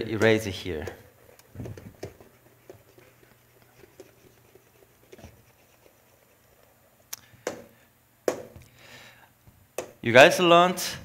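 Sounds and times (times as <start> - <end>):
stylus rubbing on whiteboard: 1.0 - 6.9.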